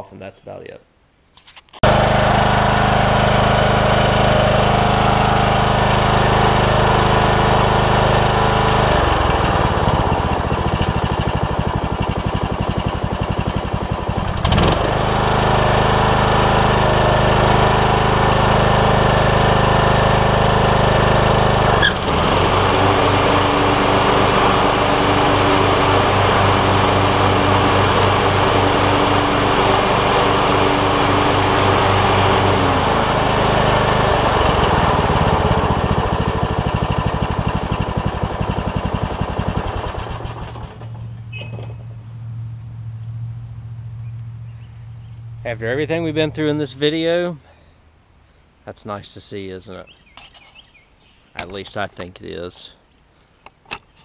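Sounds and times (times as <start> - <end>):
mower engine running: 1.8 - 47.0.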